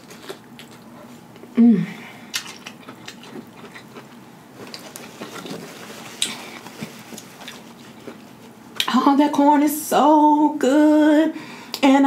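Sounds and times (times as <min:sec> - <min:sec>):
chewing corn kernels: 0:00.0 - 0:01.5, 0:02.3 - 0:08.9.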